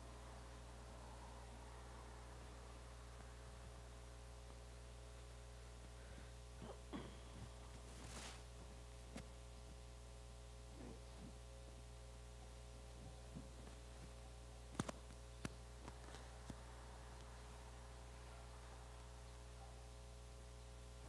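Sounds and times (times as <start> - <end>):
low electrical hum: 0.0 - 21.0.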